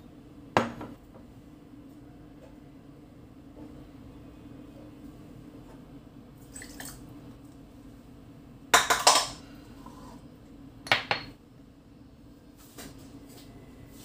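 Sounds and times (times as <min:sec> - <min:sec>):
faint steady hum: 0:00.0 - 0:14.0
kitchenware clinking and clattering: 0:08.8 - 0:09.4.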